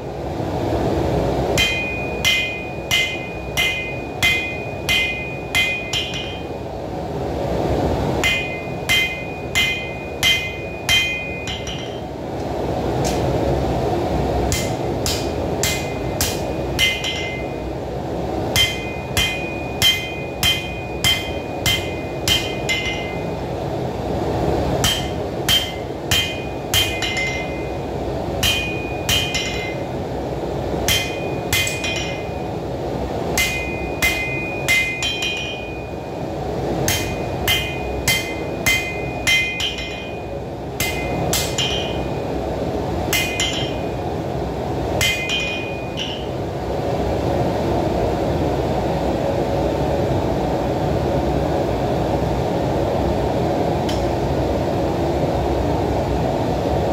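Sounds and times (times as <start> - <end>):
hammer striking steel on anvil: 1.5 - 6.6, 8.2 - 12.1, 13.0 - 13.3, 14.5 - 17.6, 18.5 - 23.4, 24.8 - 27.8, 28.4 - 30.0, 30.8 - 32.5, 33.3 - 42.4, 43.0 - 44.0, 44.9 - 46.4, 53.9 - 54.1.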